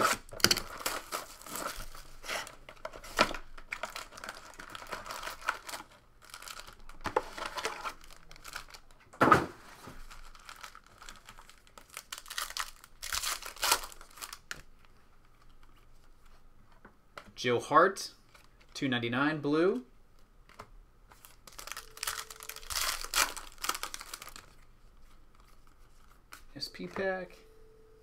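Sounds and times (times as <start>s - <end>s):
foil wrappers crinkling: 0.2s - 2.7s, 3.3s - 9.0s, 10.0s - 14.6s, 21.1s - 27.2s
foil pack tearing: 10.2s - 14.4s, 21.2s - 24.6s.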